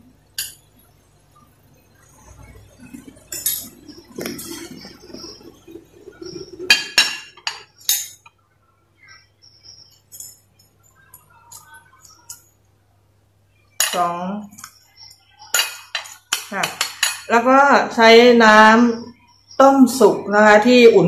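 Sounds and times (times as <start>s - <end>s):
glass clinking on glass tray: 3.3s - 4.5s, 6.7s - 8.3s.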